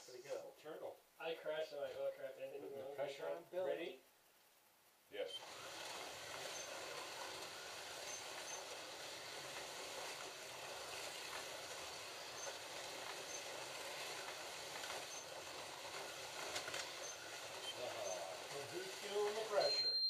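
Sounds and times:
slot cars whirring: 0:05.4 - 0:19.9.

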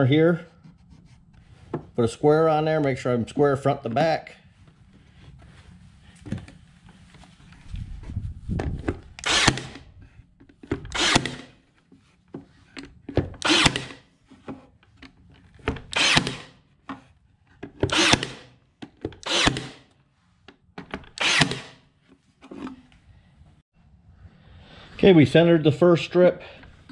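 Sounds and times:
power stapler driving staples: 0:09.2 - 0:09.9, 0:10.7 - 0:11.6, 0:13.4 - 0:14.0, 0:15.6 - 0:16.6, 0:17.8 - 0:19.9, 0:20.9 - 0:21.8.

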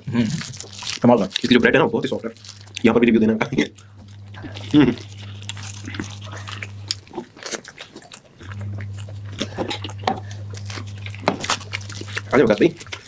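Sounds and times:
chewing food: 0:00.0 - 0:13.0
low electrical hum: 0:00.0 - 0:13.0.

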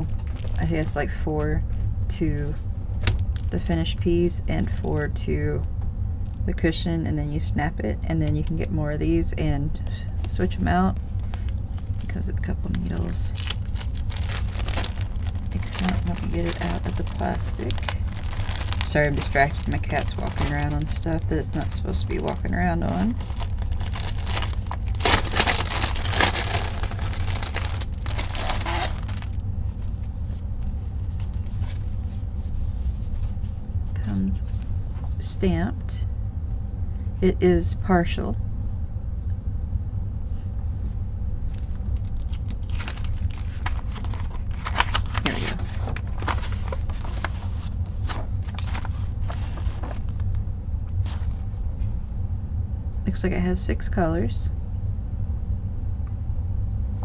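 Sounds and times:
plastic packaging crinkling: 0:00.0 - 0:01.0, 0:10.2 - 0:30.0, 0:41.5 - 0:50.4
low hum: 0:00.0 - 0:57.0
paper and cloth rustling: 0:11.2 - 0:33.6, 0:41.7 - 0:50.4, 0:51.0 - 0:51.4.

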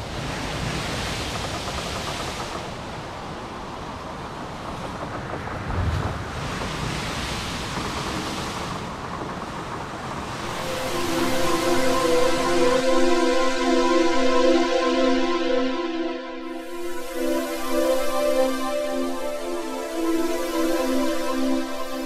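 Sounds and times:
filtered noise wash: 0:00.0 - 0:22.0
sustained synthesizer notes: 0:10.3 - 0:22.0.

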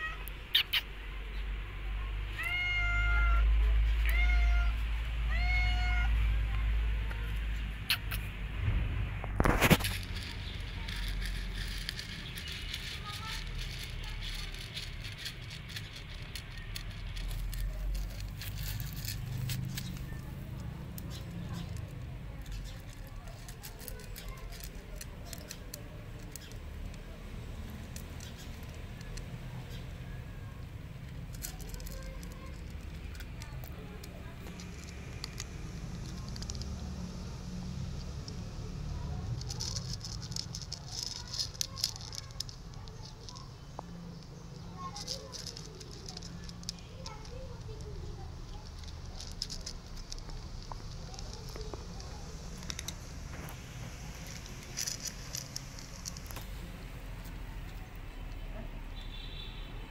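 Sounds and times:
low rumble: 0:08.4 - 0:11.6
cat crunching dry kibble: 0:09.2 - 0:58.5.

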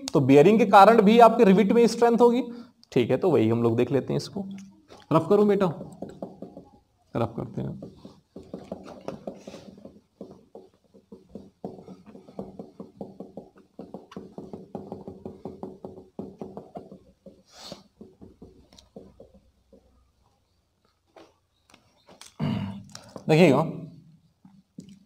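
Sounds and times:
duster rubbing whiteboard: 0:07.8 - 0:19.2.

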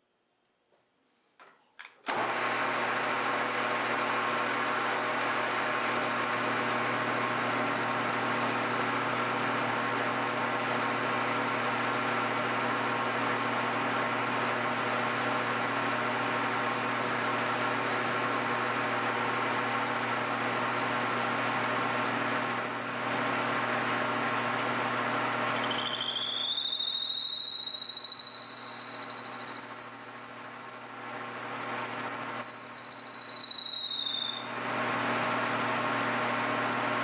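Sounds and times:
lathe and drill hum and whine: 0:02.1 - 0:37.0
high squeaks: 0:20.1 - 0:20.7, 0:22.0 - 0:23.0, 0:25.6 - 0:34.5.

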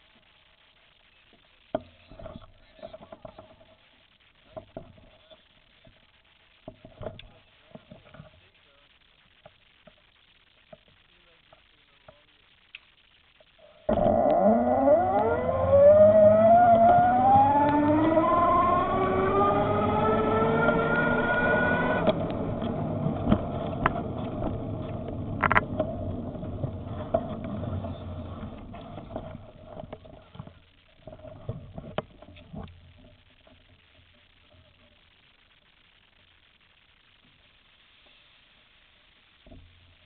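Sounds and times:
electric bike motor whining: 0:13.9 - 0:29.6
road and wind noise: 0:14.0 - 0:29.5
small knocks: 0:23.2 - 0:26.0.

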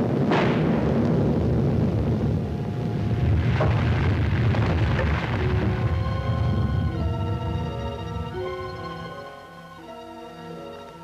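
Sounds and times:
sharp cracks: 0:00.0 - 0:02.0, 0:02.6 - 0:06.4
volcano rumbling: 0:00.0 - 0:08.7
orchestral music: 0:05.0 - 0:11.0.

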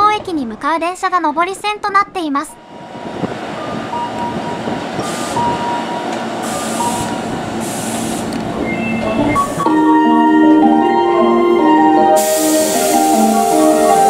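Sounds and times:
train wheels and motors rumbling: 0:02.6 - 0:09.7
short high hisses: 0:06.4 - 0:08.3, 0:12.2 - 0:13.8.

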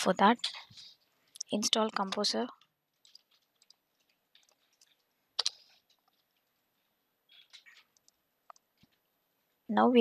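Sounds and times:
computer mouse and keyboard clicks: 0:00.5 - 0:06.6, 0:07.3 - 0:09.0
soft rustles: 0:02.9 - 0:08.0.

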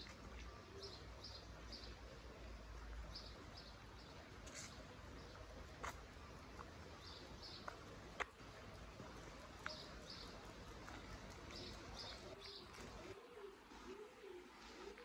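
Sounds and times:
quiet street ambience: 0:00.0 - 0:15.0
small birds chirping: 0:00.0 - 0:15.0
dove cooing: 0:09.1 - 0:15.0.

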